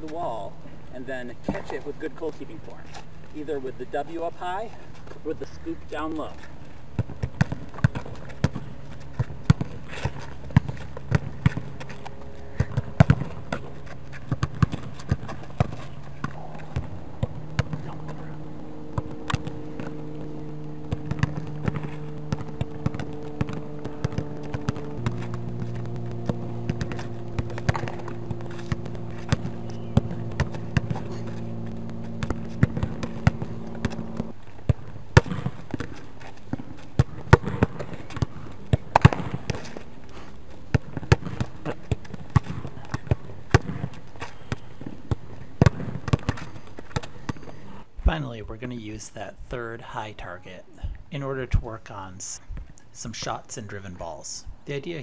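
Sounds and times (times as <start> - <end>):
steady low hum: 0.0 - 48.0
ball thudding against wall: 18.9 - 39.6.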